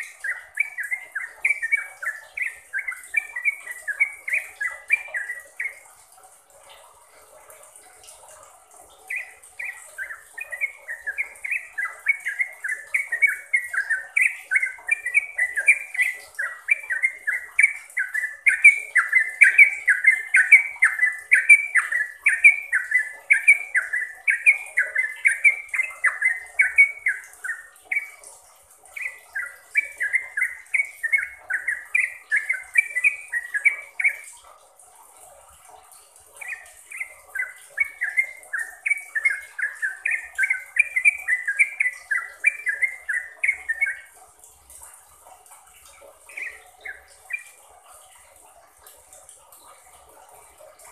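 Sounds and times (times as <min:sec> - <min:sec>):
bulbul singing chirpy notes: 0:00.0 - 0:05.9, 0:09.0 - 0:34.3, 0:36.4 - 0:44.2.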